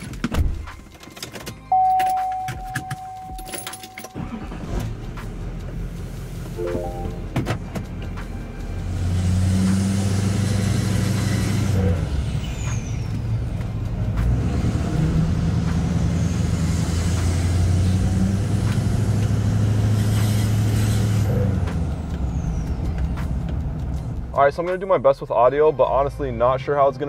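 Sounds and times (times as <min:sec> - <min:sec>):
diesel truck engine accelerating: 0:04.1 - 0:24.4.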